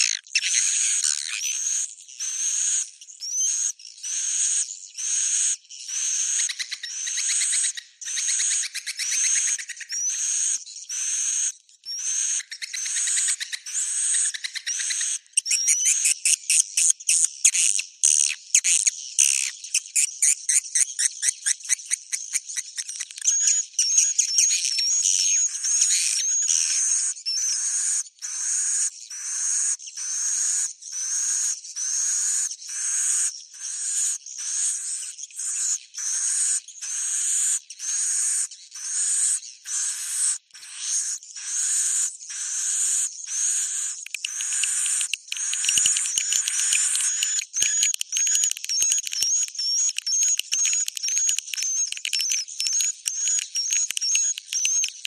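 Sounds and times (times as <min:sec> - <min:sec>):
swiftlet twittering calls: 0:00.0 - 0:01.5, 0:02.2 - 0:17.2, 0:34.5 - 0:55.0
chirps and trills: 0:00.0 - 0:55.0.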